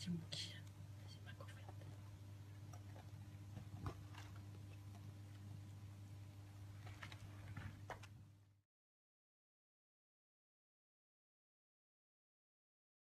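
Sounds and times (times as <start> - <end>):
steady low hum: 0.0 - 8.6
kittens scrabbling in litter: 6.7 - 8.2.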